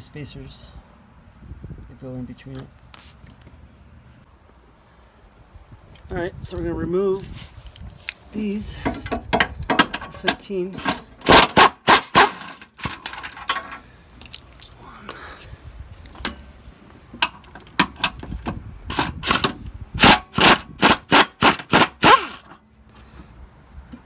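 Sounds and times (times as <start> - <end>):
hand tools clicking and clinking: 8.9 - 15.5.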